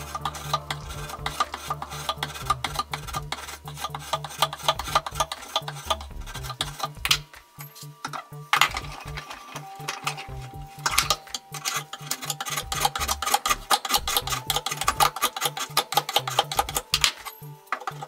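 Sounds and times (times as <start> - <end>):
hand file rasping on wood: 0.0 - 7.0
background music with steady beat: 0.0 - 18.0.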